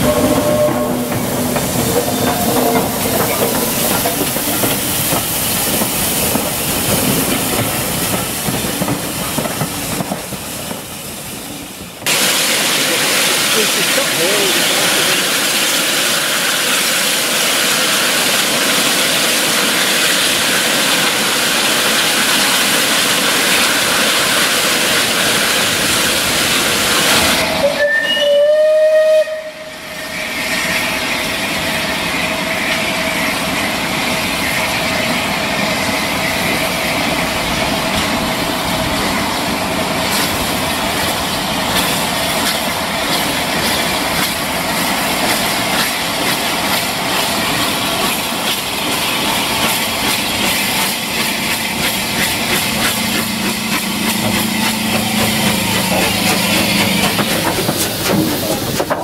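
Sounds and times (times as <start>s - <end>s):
steam hissing: 0.0s - 59.0s
steam whistle blast: 27.5s - 30.3s.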